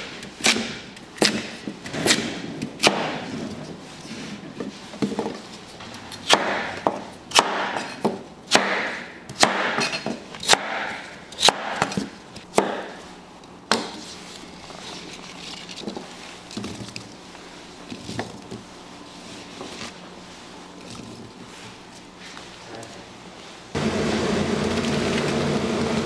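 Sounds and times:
scraping rustle: 0:14.0 - 0:18.2.

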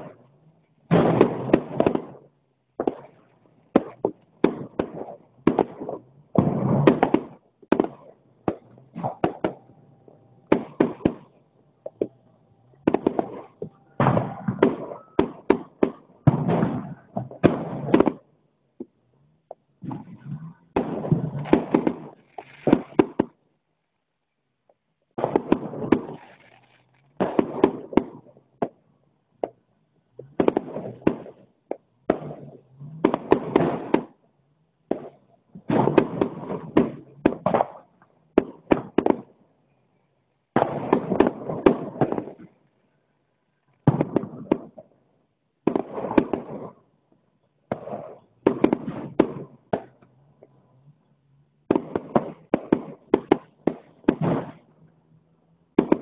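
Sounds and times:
fireworks bursting: 0:00.0 - 0:23.4, 0:25.1 - 0:34.2, 0:34.8 - 0:56.0.

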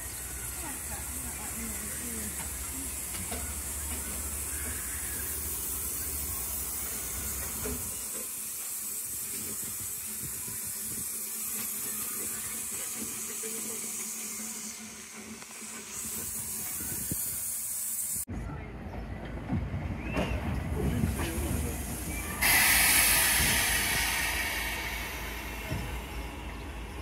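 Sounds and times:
steam hissing: 0:00.0 - 0:18.3, 0:21.0 - 0:27.0
low rumble: 0:22.5 - 0:27.0.

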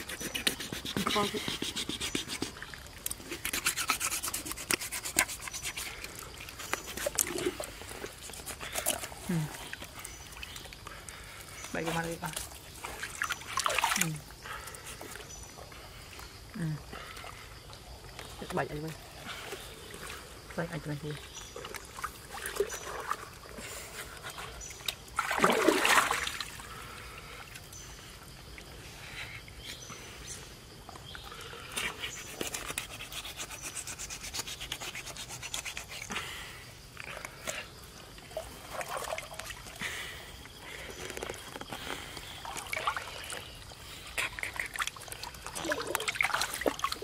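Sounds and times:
scraping and rubbing on hide: 0:00.0 - 0:02.6, 0:03.3 - 0:08.7, 0:31.8 - 0:36.1
river water splashing: 0:11.9 - 0:15.2, 0:21.3 - 0:24.0, 0:24.8 - 0:27.6, 0:38.2 - 0:40.6, 0:42.2 - 0:47.0
loud splash: 0:25.2 - 0:26.4.

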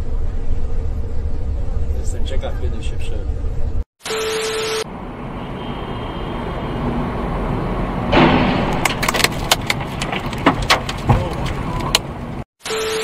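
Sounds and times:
road rumble inside car: 0:06.3 - 0:12.4
truck load crashing into overpass: 0:07.9 - 0:11.7
sharp cracks: 0:08.1 - 0:12.1.

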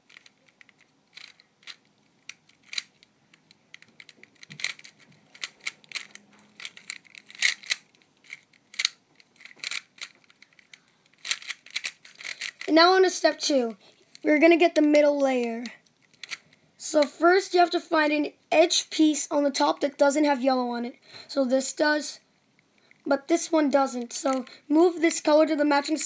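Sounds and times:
plastic puzzle cube clicking: 0:00.0 - 0:12.7, 0:15.9 - 0:16.5.

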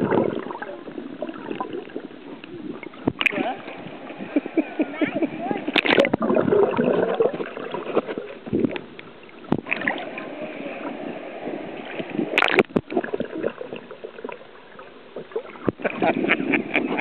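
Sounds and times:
muffled underwater sloshing: 0:00.0 - 0:17.0
splashing at water surface: 0:05.7 - 0:08.3, 0:11.8 - 0:13.8
crackling splash: 0:05.7 - 0:10.3, 0:11.9 - 0:14.5.

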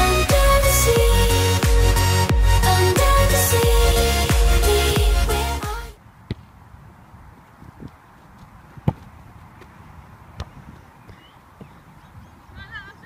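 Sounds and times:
football kicked thuds: 0:06.3 - 0:06.5, 0:08.8 - 0:09.1.

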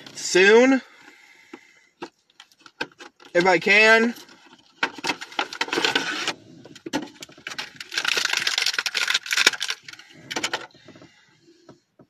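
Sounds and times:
plastic packaging crinkling: 0:02.3 - 0:10.7.

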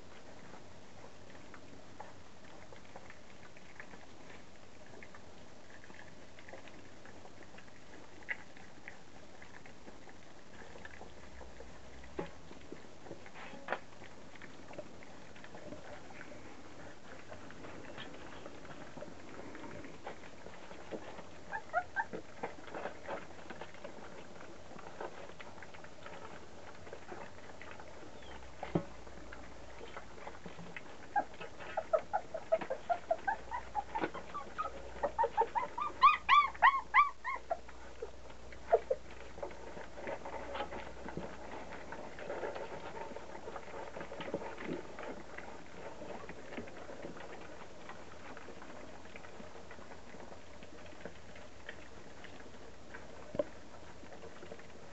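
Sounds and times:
puppies crunching kibble from metal pan: 0:00.0 - 0:54.9
puppies whining and yelping: 0:13.0 - 0:24.2, 0:24.9 - 0:52.6.

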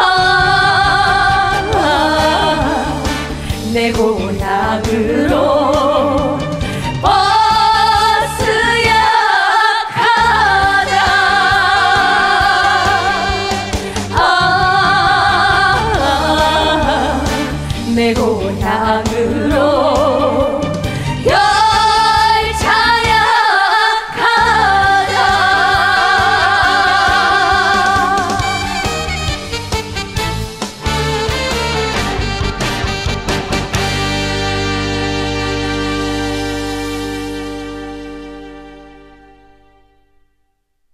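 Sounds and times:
women singing with vibrato: 0:00.0 - 0:28.9
backing band: 0:00.0 - 0:39.6.

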